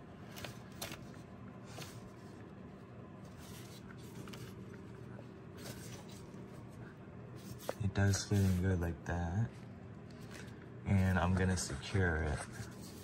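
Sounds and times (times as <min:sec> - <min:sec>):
gloved hand rustling: 0:00.2 - 0:08.8.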